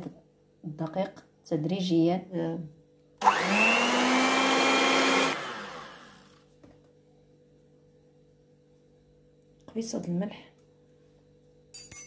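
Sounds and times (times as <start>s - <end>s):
electric hand mixer whine: 3.2s - 6.4s.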